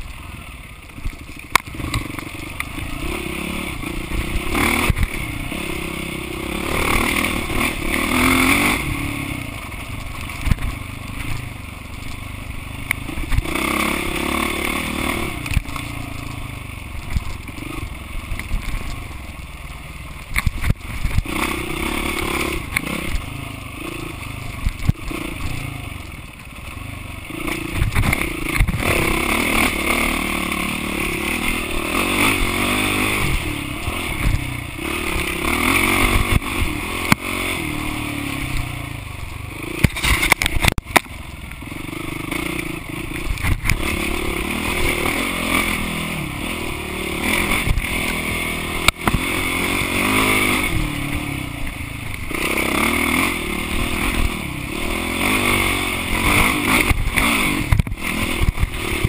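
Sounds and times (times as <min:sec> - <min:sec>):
bike knocking and rattling: 0:00.0 - 0:13.7, 0:20.1 - 0:29.8, 0:38.4 - 0:44.0, 0:55.3 - 0:59.0
dirt bike engine revving: 0:00.0 - 0:19.6, 0:20.2 - 0:59.0.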